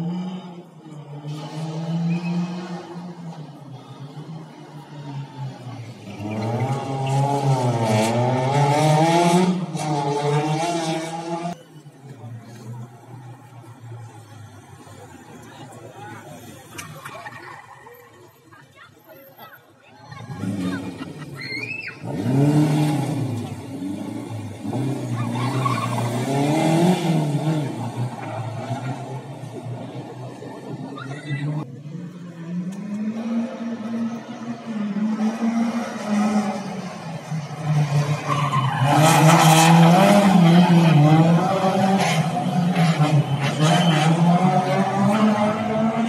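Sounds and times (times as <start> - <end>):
rally car engine revving: 0.0 - 11.6, 20.2 - 21.4, 22.0 - 46.0.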